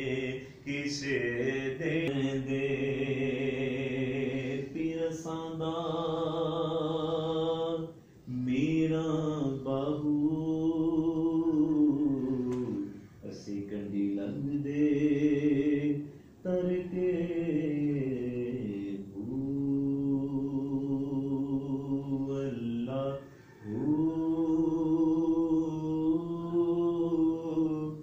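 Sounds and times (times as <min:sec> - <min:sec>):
man chanting: 0:00.0 - 0:28.0.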